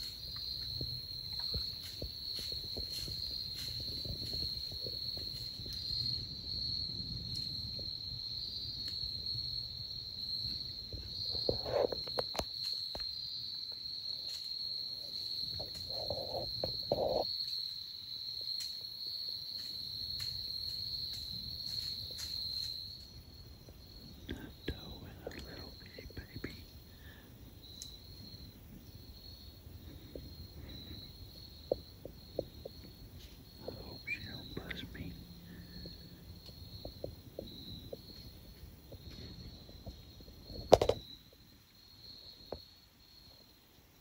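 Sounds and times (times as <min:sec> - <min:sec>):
insect chorus droning: 0:00.0 - 0:44.0
faint ticks: 0:08.8 - 0:09.0, 0:15.1 - 0:17.8, 0:18.4 - 0:18.9, 0:19.5 - 0:28.0.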